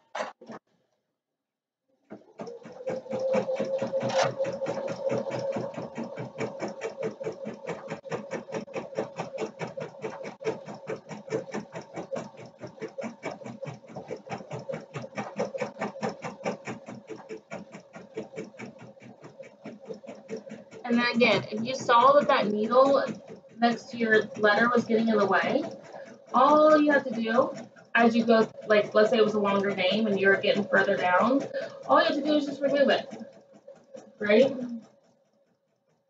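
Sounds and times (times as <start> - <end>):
steady motor hum: 2.0 - 36.0
embroidery machine needle strokes: 2.1 - 35.4.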